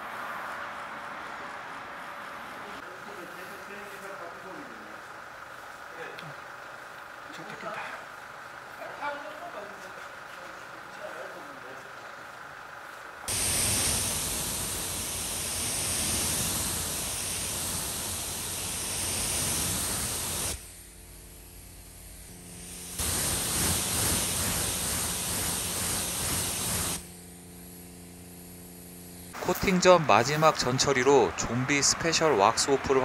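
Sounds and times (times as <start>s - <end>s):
high-pressure water spray: 13.3s - 20.6s, 22.4s - 27.1s.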